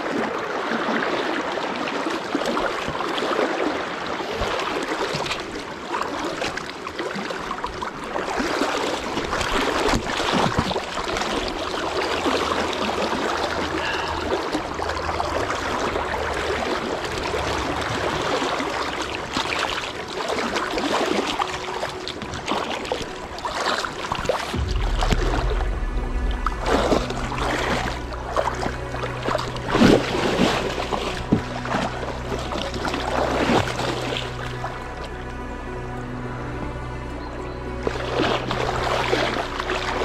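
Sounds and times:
river rushing: 0.0s - 40.0s
low rumbles on microphone: 24.5s - 37.0s.

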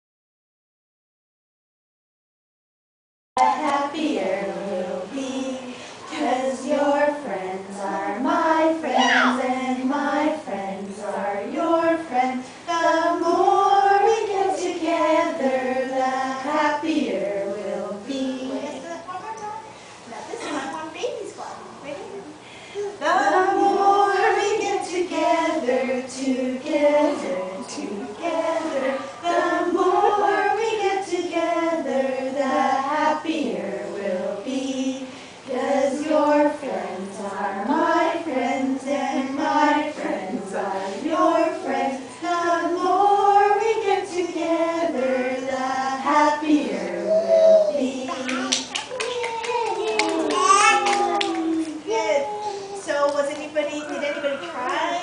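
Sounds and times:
group singing unaccompanied: 3.4s - 18.9s, 23.0s - 48.8s.

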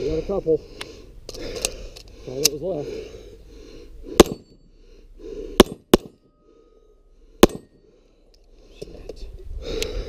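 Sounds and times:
pistol gunshots: 4.2s - 4.6s, 5.6s - 6.3s, 7.4s - 7.8s.

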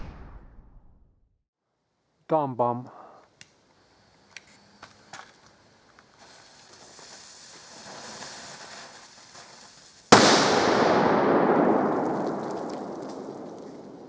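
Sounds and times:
fuse hissing and spitting: 6.0s - 10.0s
firecracker bang: 10.1s - 14.0s.

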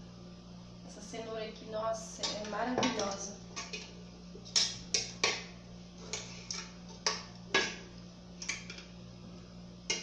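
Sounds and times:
utensil scraping a metal pot: 6.0s - 7.8s.

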